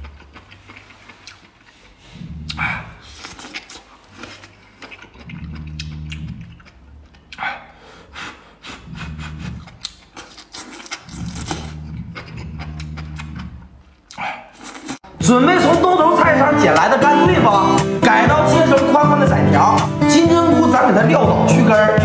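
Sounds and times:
wet chewing: 0:00.0 - 0:15.0
person slurping: 0:00.0 - 0:15.2
closed-mouth humming: 0:00.0 - 0:20.6.

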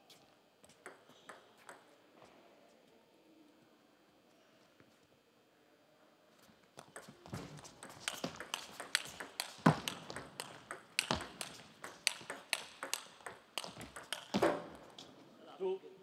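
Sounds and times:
ping pong ball clicking: 0:00.8 - 0:01.9, 0:06.8 - 0:14.4.

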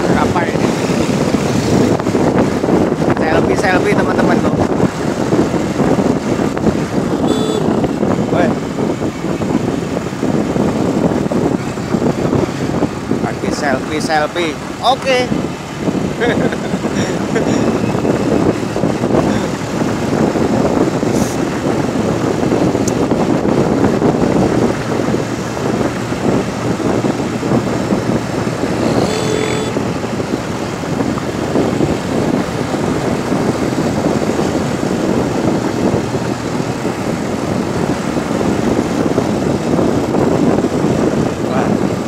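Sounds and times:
vehicle engine running: 0:00.0 - 0:41.7
wind buffeting microphone: 0:00.0 - 0:42.0
brief higher tone: 0:28.8 - 0:29.8.

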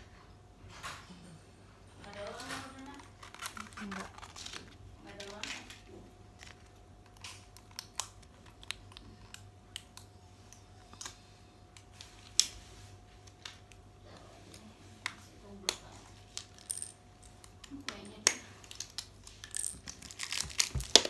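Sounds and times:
plastic toy packaging clicks and rustles: 0:02.0 - 0:10.1, 0:16.2 - 0:21.0.

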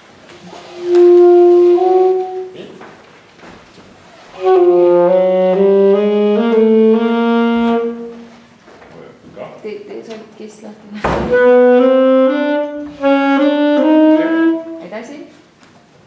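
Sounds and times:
saxophones playing long notes: 0:00.4 - 0:02.8, 0:04.2 - 0:08.5, 0:11.3 - 0:15.1.

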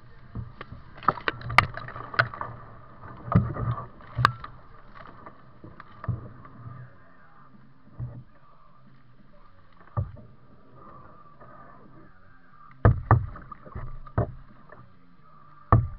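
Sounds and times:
paddle splashes and drips: 0:00.0 - 0:15.9
sharp knocks and clicks: 0:12.8 - 0:14.5.

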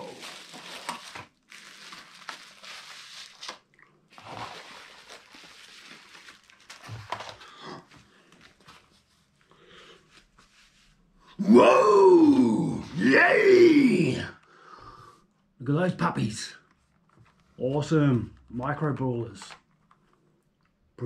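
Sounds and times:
bubble wrap crinkling: 0:00.0 - 0:07.5.

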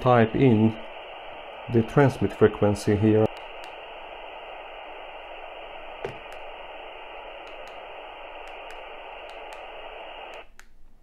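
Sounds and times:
radio static hiss: 0:00.0 - 0:10.5.

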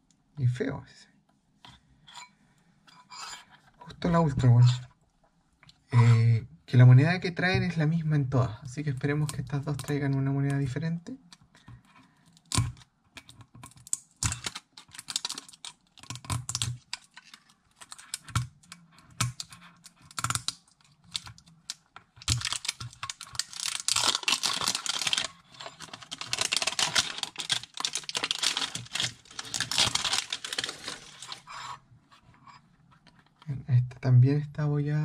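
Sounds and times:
plastic film crackling as torn: 0:13.8 - 0:18.3, 0:20.1 - 0:31.5
plastic shrink wrap crinkling: 0:13.8 - 0:18.7, 0:19.3 - 0:31.5.

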